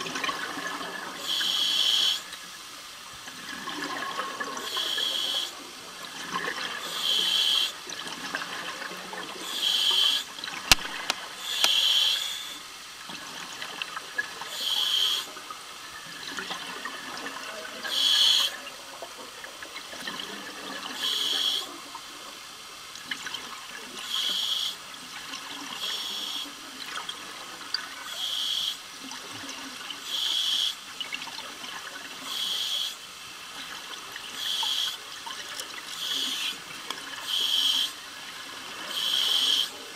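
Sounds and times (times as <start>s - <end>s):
regulator hiss: 1.1s - 2.4s, 4.6s - 5.6s, 6.8s - 7.8s, 9.4s - 12.7s, 14.5s - 15.4s, 17.8s - 18.6s, 21.0s - 21.8s, 24.0s - 24.8s, 25.8s - 26.6s, 28.0s - 28.8s, 30.0s - 30.8s, 32.2s - 33.1s, 34.3s - 35.1s, 36.0s - 36.6s, 37.2s - 38.0s, 38.8s - 39.9s
sharp click: 10.7s - 11.8s.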